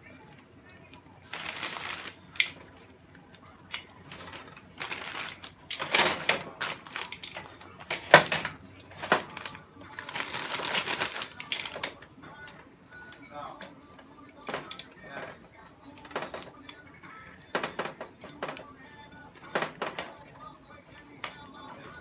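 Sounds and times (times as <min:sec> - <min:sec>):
plastic bag crinkling: 0:01.2 - 0:02.6, 0:04.0 - 0:12.5.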